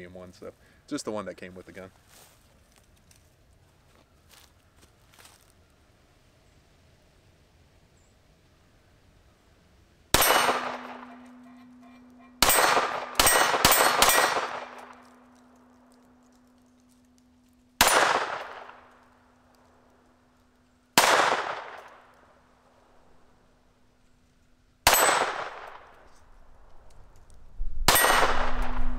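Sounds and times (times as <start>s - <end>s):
pistol shots: 10.2s - 11.8s, 12.4s - 15.6s, 17.8s - 19.0s, 21.0s - 22.1s, 24.8s - 26.0s, 27.9s - 28.8s
low ringing tone: 10.3s - 17.8s, 28.2s - 28.9s.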